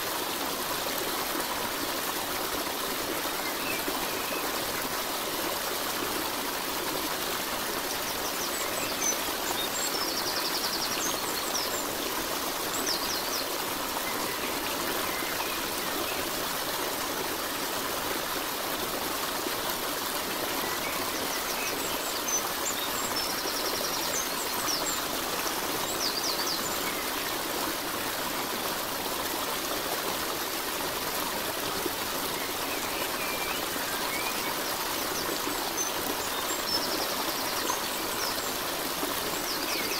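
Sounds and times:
stream rushing and trickling: 0:00.0 - 0:39.9.

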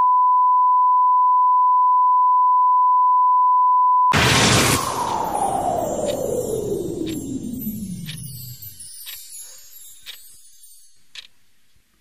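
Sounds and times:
rush of noise: 0:04.1 - 0:10.0
tone sliding down in pitch: 0:04.4 - 0:10.8.

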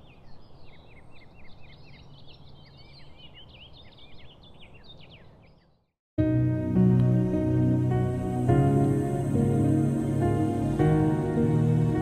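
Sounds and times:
small birds chirping: 0:00.0 - 0:06.0.

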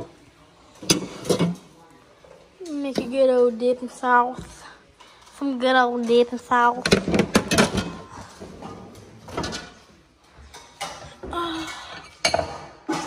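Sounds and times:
bowls clattering: 0:06.9 - 0:13.0.

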